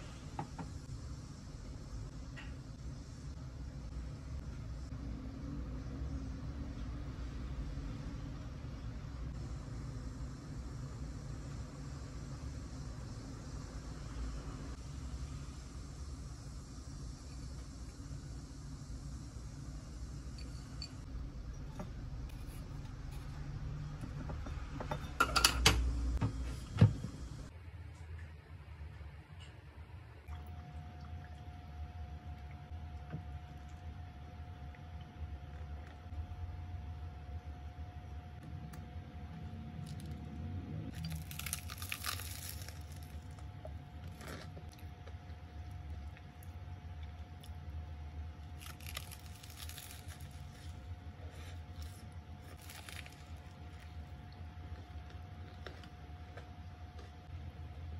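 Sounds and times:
glass clinking: 0:20.3 - 0:21.0
crunching toasted sandwich: 0:40.9 - 0:46.0, 0:48.3 - 0:57.3.

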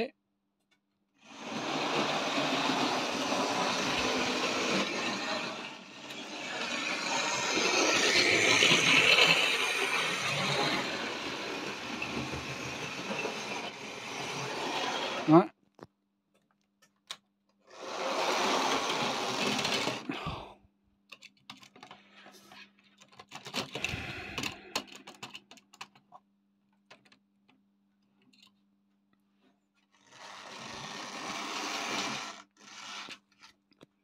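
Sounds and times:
small electric motor whirring: 0:01.3 - 0:15.4, 0:17.7 - 0:20.1, 0:30.0 - 0:33.3
wheels clattering over rail joints: 0:01.5 - 0:15.3.

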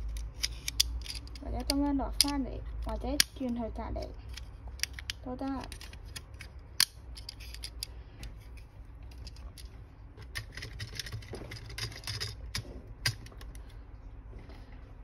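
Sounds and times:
plastic model parts clicking: 0:00.0 - 0:03.6, 0:04.3 - 0:07.9, 0:09.1 - 0:13.6.

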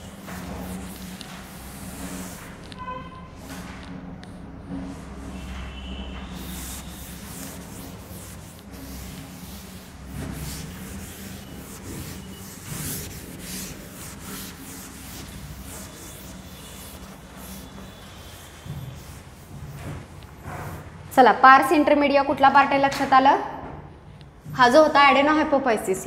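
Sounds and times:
pen scribbling on paper: 0:06.4 - 0:19.9.

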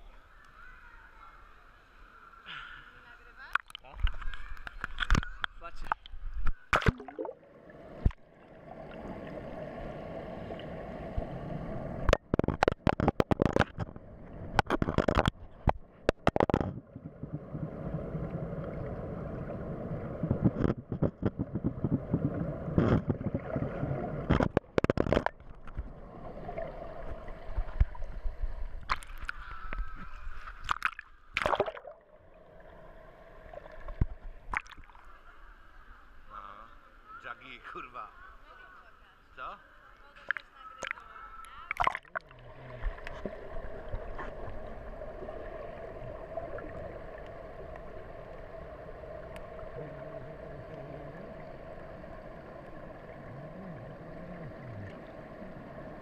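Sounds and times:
muffled water gurgling and sloshing: 0:03.6 - 0:36.3, 0:40.0 - 0:56.0
sharp knocks and clicks: 0:12.1 - 0:16.9.

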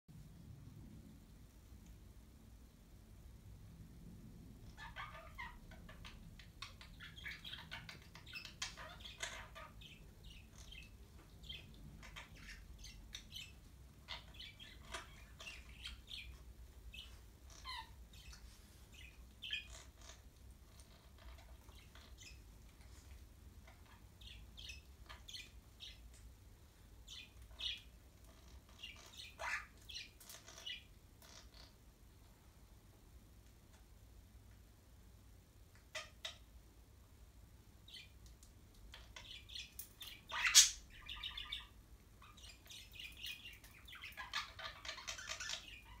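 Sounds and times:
low room hum: 0:00.1 - 0:46.0
parrots chirping and chattering: 0:04.5 - 0:26.4, 0:27.0 - 0:32.3, 0:35.7 - 0:36.6, 0:37.8 - 0:46.0.

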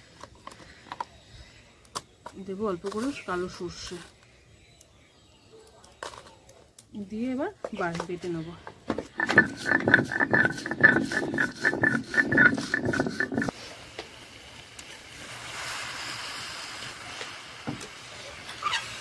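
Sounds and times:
stone roller grinding on stone: 0:09.0 - 0:13.5
faint steady hiss: 0:13.5 - 0:19.0.

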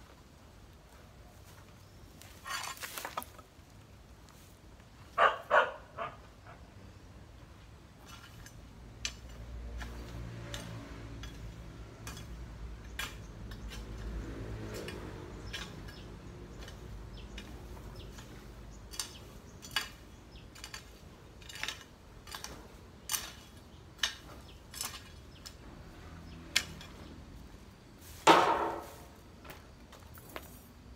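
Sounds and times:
garden tool scraping soil: 0:02.2 - 0:03.4.

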